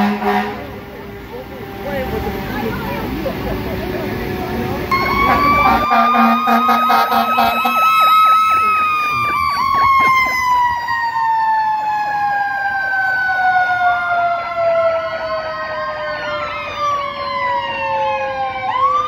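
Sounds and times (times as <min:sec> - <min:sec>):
long fire truck siren: 0:00.0 - 0:19.0
warbling siren: 0:04.3 - 0:19.0.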